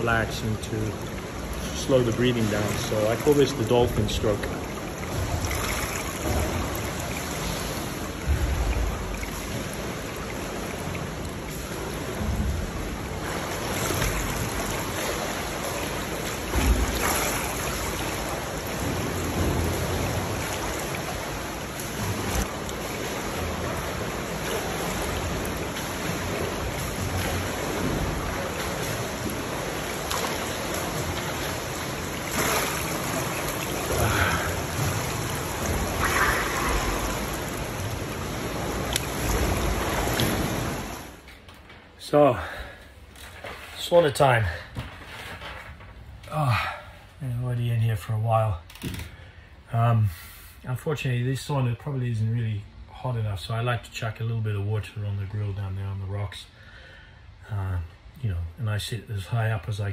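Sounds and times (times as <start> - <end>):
pool water splashing: 0.0 - 44.4.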